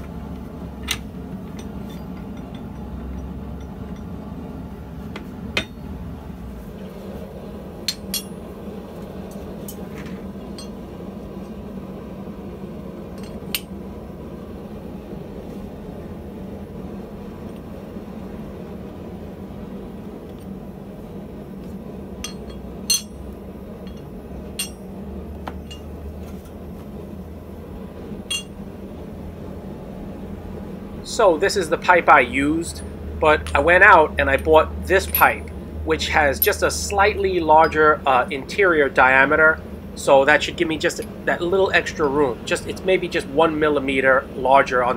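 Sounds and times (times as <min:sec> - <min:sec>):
steady low hum: 0:00.0 - 0:44.9
metal parts clinking: 0:22.2 - 0:23.2, 0:34.9 - 0:35.5.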